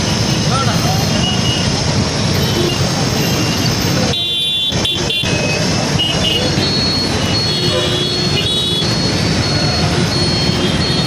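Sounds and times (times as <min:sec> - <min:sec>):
road traffic noise: 0:00.0 - 0:11.0
vehicle horn honking: 0:07.4 - 0:08.9.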